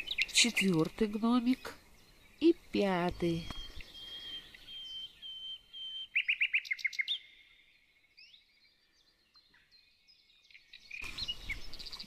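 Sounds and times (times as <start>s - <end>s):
small birds chirping: 0.0s - 12.0s
bird whistles: 3.6s - 7.3s.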